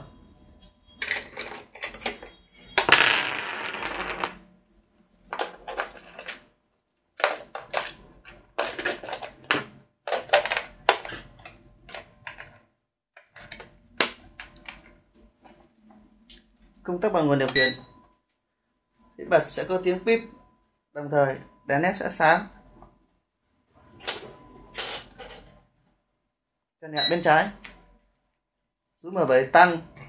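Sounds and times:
plastic clicks and rattles: 0:07.2 - 0:12.6.

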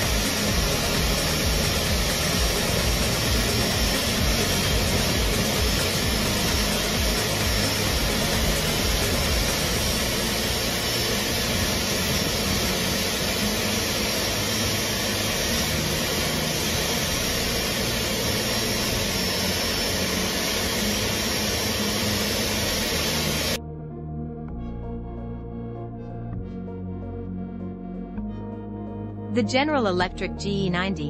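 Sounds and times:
jet engine rushing noise: 0:00.0 - 0:23.6.

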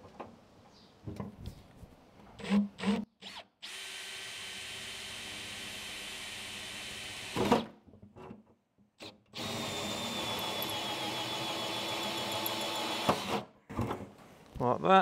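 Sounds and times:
drill whining through metal: 0:02.4 - 0:07.8, 0:09.0 - 0:13.5.

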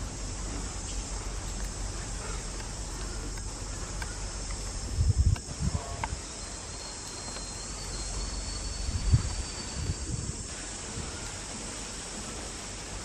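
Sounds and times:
high-pitched insect chorus: 0:00.0 - 0:13.0
thin high tone: 0:05.7 - 0:11.4.

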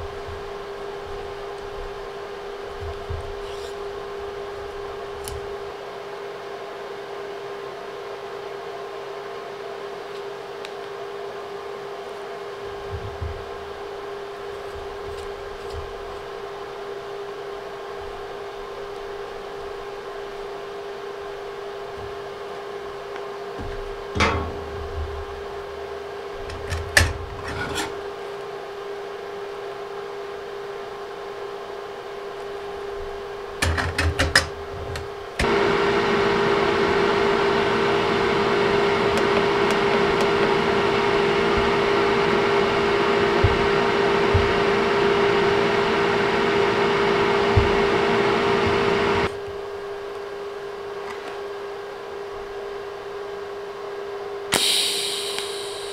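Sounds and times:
welding machine cooling fan whirring: 0:00.0 - 0:06.5, 0:10.0 - 0:53.5, 0:54.5 - 0:55.9
steady hum: 0:54.5 - 0:55.9.

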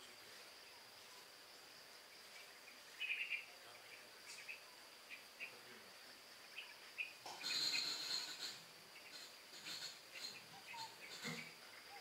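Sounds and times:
faint high insect trill: 0:00.0 - 0:12.0
bird chirping: 0:02.1 - 0:05.7, 0:06.3 - 0:12.0.

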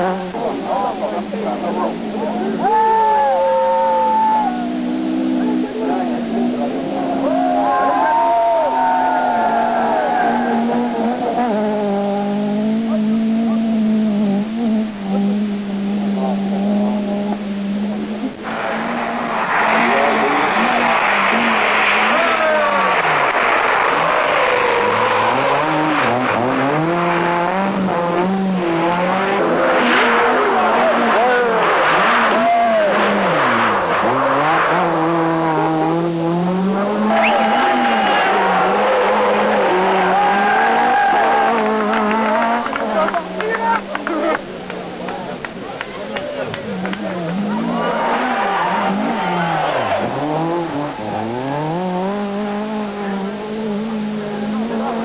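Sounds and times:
rally car engine revving past: 0:03.4 - 0:45.6, 0:46.3 - 0:55.0.

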